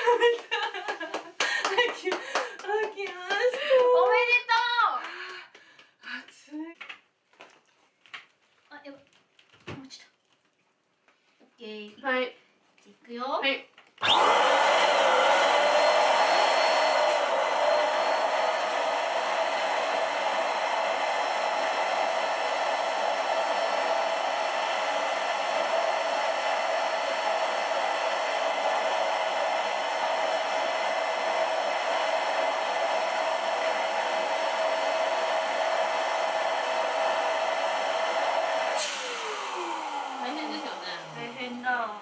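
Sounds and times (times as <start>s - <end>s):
electric air pump whining: 14.0s - 42.0s.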